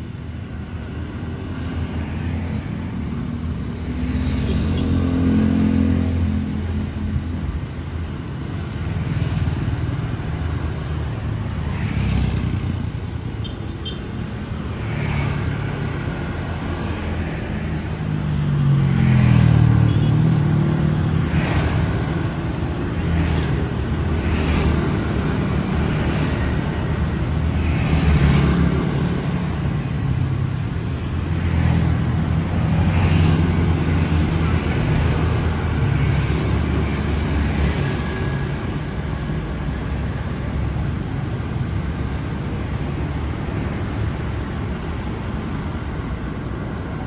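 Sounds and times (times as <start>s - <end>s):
vehicles passing close by: 0.0s - 47.0s.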